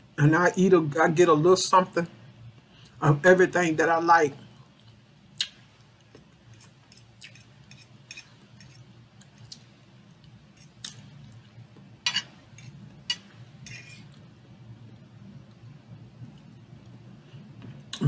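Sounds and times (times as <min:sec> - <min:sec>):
faint low hum: 0:00.0 - 0:18.0
person chewing food: 0:04.8 - 0:11.6
wet mouth clicks: 0:05.4 - 0:05.6.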